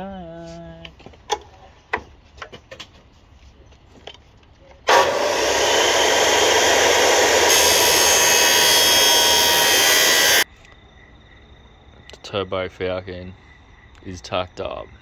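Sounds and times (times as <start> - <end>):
mitre saw running: 4.9 - 10.4
saw blade cutting metal pipe: 4.9 - 10.4.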